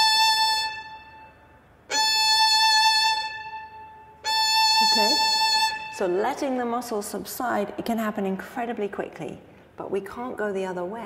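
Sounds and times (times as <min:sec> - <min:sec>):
violin bowed long notes: 0:00.0 - 0:06.2.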